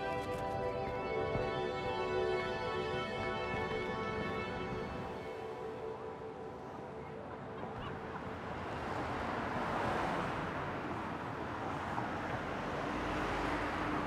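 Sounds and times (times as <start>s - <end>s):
street traffic: 0.0s - 14.0s
vehicle passing: 8.2s - 14.0s.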